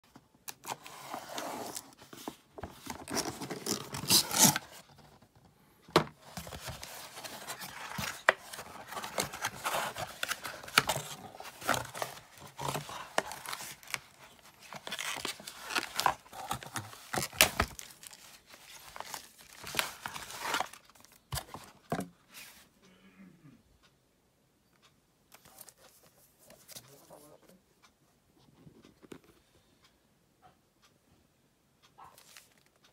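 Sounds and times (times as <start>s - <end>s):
cardboard tearing and rustling: 0.6s - 5.0s, 6.2s - 21.6s.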